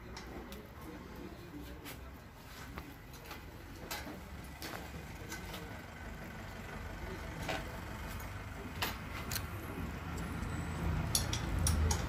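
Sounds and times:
metal tool clicks and clinks: 0:11.0 - 0:12.0.

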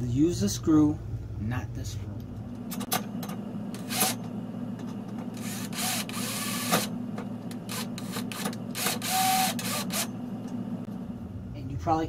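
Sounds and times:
steady low hum: 0:00.0 - 0:12.0
drill driving screw: 0:03.8 - 0:04.2, 0:05.4 - 0:06.9, 0:07.6 - 0:10.1.

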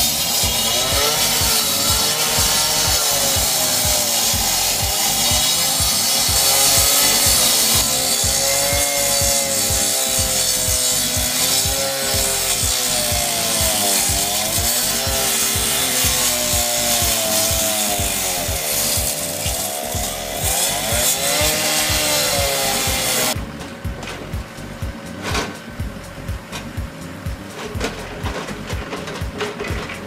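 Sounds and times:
cut-off saw cutting asphalt: 0:00.0 - 0:23.4.

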